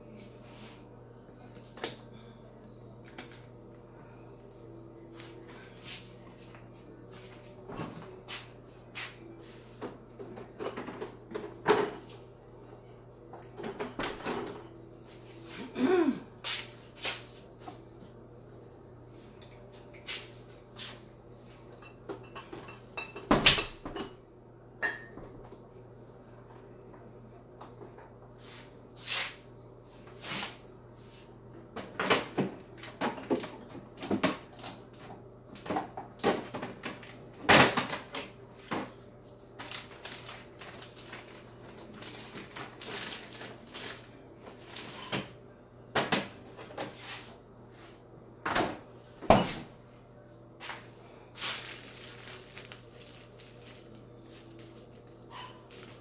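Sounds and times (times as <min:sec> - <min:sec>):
steady low hum: 0:00.0 - 0:23.2.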